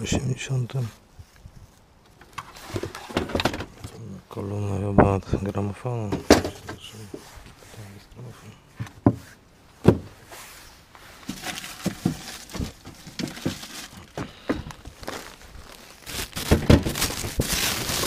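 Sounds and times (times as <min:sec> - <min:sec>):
hard objects being shifted: 0:02.1 - 0:04.0, 0:06.1 - 0:07.6, 0:08.8 - 0:15.4
plastic bag rustling: 0:10.4 - 0:18.0.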